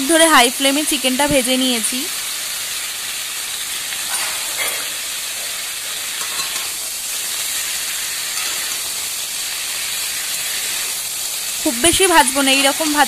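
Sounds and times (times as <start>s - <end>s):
chicken sizzling in oil: 0.0s - 13.0s
metal spatula scraping: 4.1s - 6.8s, 7.6s - 9.1s.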